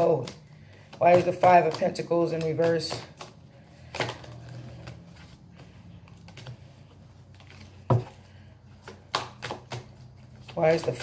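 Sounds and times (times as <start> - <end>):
cards being shuffled: 0.0 - 11.0.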